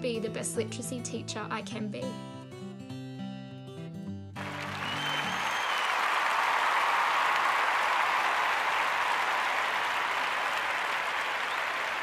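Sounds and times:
large crowd clapping: 4.4 - 12.0.

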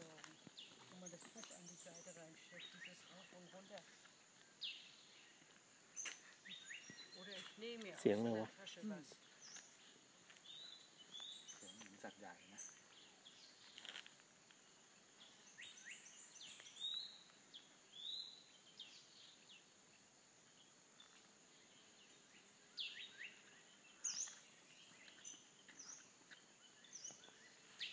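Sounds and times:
high insect whine: 0.0 - 27.9
birds chirping and whistling: 6.0 - 7.8, 15.2 - 19.3, 22.4 - 27.9.

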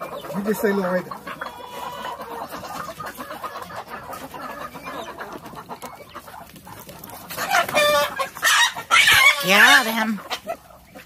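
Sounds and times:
chickens clucking: 0.0 - 11.0
rooster squawking: 7.3 - 10.6.

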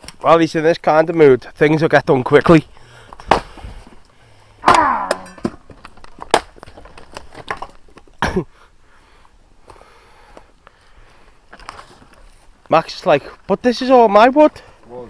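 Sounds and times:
sharp knocks: 4.6 - 5.7.

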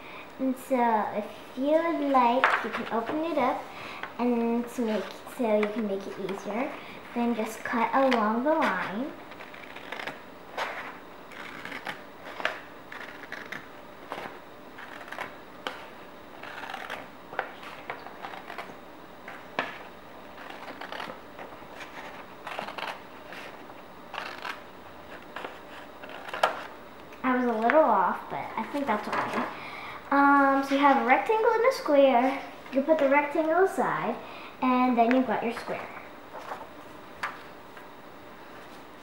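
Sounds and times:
scissors snipping paper: 7.7 - 21.2, 21.8 - 23.5, 24.1 - 26.7
paper rustling: 36.3 - 37.5.

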